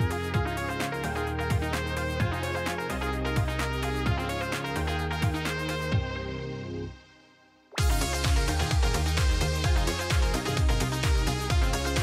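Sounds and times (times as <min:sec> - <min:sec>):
electronic music with steady beat: 0:00.0 - 0:07.0, 0:07.7 - 0:12.0.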